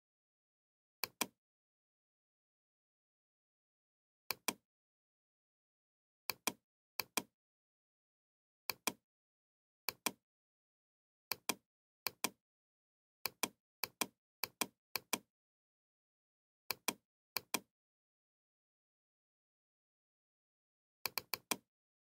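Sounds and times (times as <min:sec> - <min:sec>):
computer mouse clicking: 0:06.3 - 0:07.3, 0:08.7 - 0:09.0, 0:09.9 - 0:10.2, 0:13.3 - 0:15.3, 0:16.7 - 0:17.7, 0:21.1 - 0:21.6.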